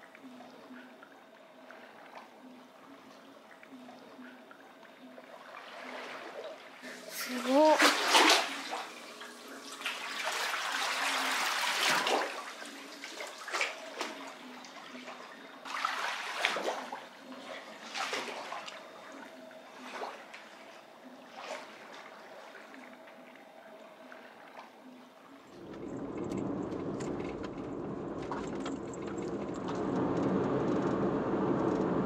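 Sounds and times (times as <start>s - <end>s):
water splashing and lapping: 0.0s - 30.5s.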